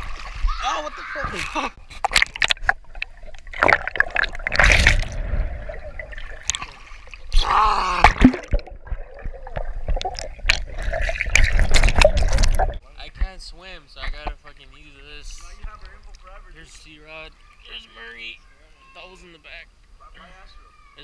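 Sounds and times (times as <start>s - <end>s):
pool water splashing and gurgling: 0.0s - 12.8s.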